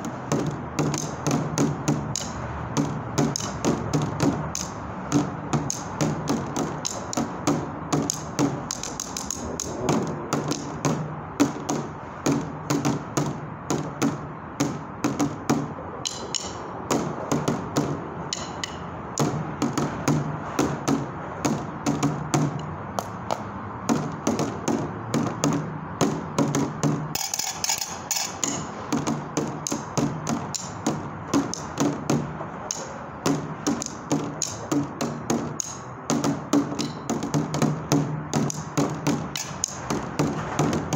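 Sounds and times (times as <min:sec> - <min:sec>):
drumsticks on plastic container: 0:27.2 - 0:29.9.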